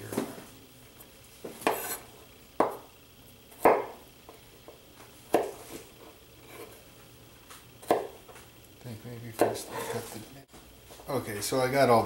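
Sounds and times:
knife chopping on wooden board: 1.5 - 2.0, 2.6 - 2.9, 3.6 - 4.0, 5.3 - 5.6, 7.8 - 8.3, 9.4 - 9.9.

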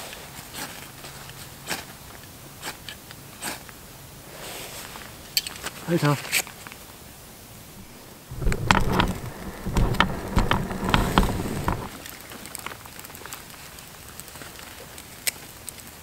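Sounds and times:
kindling crackling in campfire: 7.4 - 16.0.

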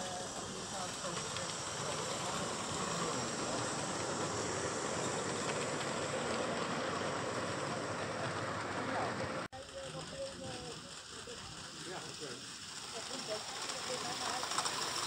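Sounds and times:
model steam train wheels rolling: 0.0 - 15.0.

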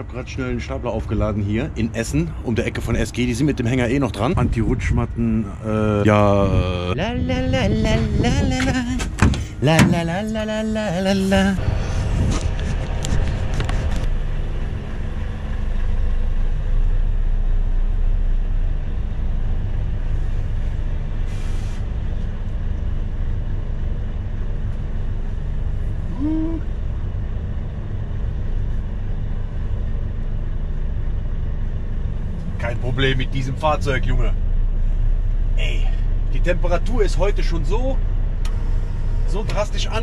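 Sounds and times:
truck diesel engine drone: 0.0 - 40.0
short hiss: 21.2 - 21.9.

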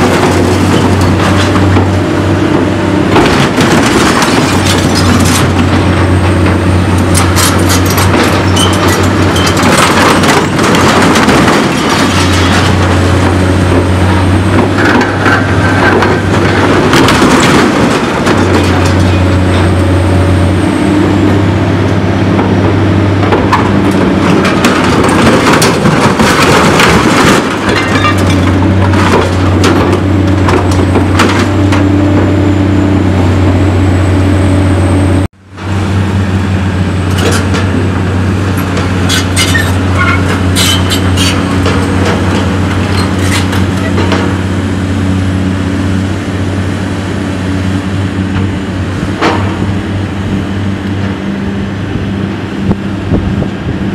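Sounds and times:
excavator engine hum: 0.0 - 53.9
metal crushing and tearing: 38.5 - 44.4.

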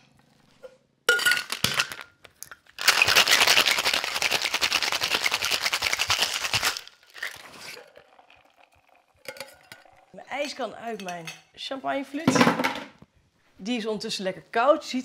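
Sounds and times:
ice rattling in shaker: 2.8 - 10.0
metal tins clinking on ice: 8.9 - 11.4.

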